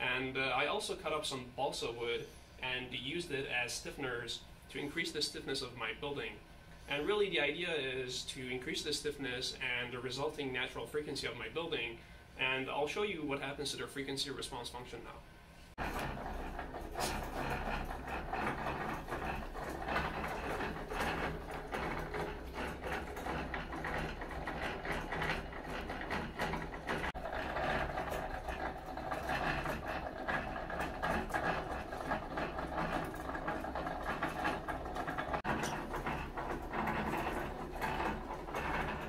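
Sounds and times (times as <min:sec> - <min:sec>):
mechanical clatter and rattle: 0:15.8 - 0:39.0.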